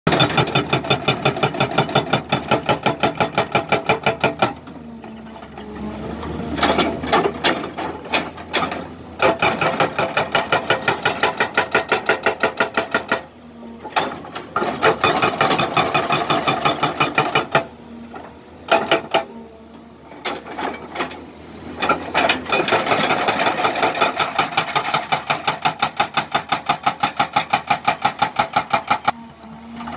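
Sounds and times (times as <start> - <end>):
hydraulic breaker hammering rock: 0.1 - 4.6, 6.8 - 13.3, 14.0 - 17.7, 18.7 - 19.3, 21.8 - 29.1
excavator engine humming: 2.2 - 26.6.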